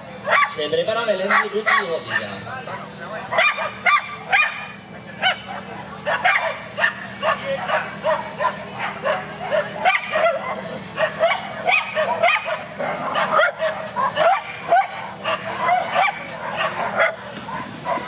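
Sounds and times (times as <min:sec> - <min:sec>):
small dog yapping: 0:00.2 - 0:00.5, 0:03.3 - 0:18.0.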